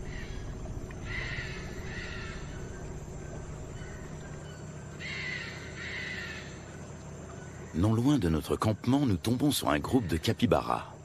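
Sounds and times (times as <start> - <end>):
harsh animal calls: 0.0 - 6.6
steady low background: 0.0 - 9.6.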